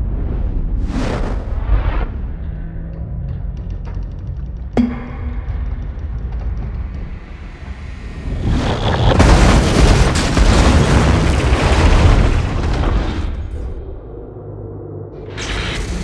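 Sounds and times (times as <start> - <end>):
low rumble: 0.0 - 16.0
train crash and boom: 9.1 - 13.6.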